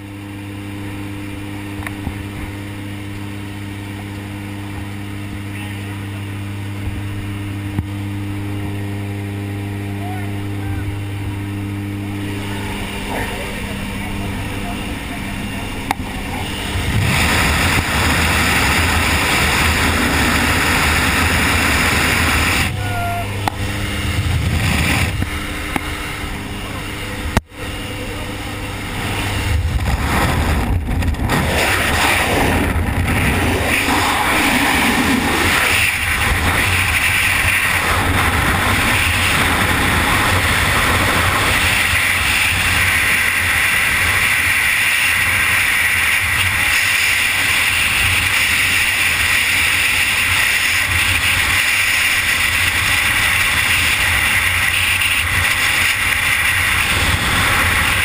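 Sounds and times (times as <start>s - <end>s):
freefall wind rushing: 16.5s - 25.2s.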